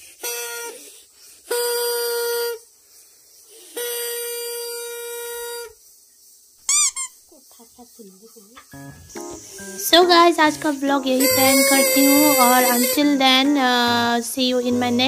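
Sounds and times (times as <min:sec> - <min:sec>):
horn blasts: 0:11.1 - 0:15.0.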